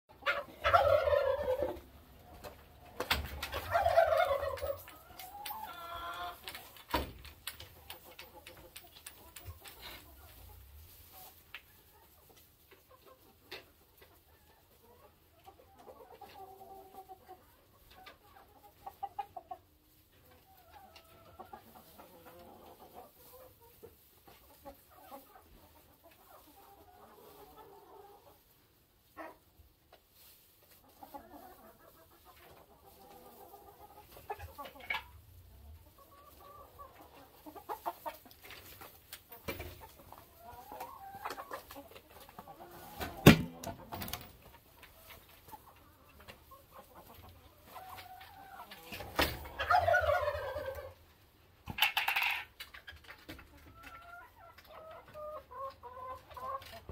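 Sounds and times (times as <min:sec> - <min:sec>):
hens calling: 0:00.1 - 0:07.1, 0:30.8 - 0:51.0
chickens clucking: 0:00.1 - 0:56.9
sharp knocks: 0:43.2 - 0:43.6.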